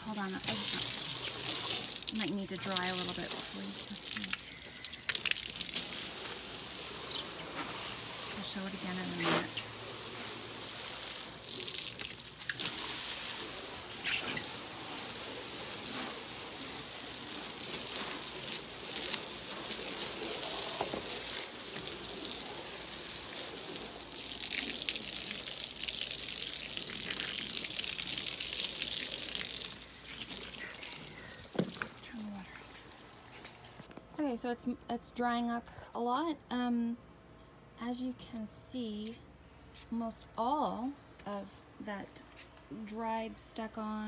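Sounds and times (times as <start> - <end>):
garden hose spraying water: 0.0 - 33.9.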